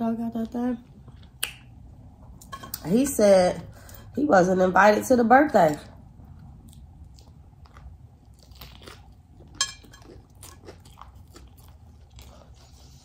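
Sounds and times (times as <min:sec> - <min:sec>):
person chewing food: 0:06.2 - 0:13.0.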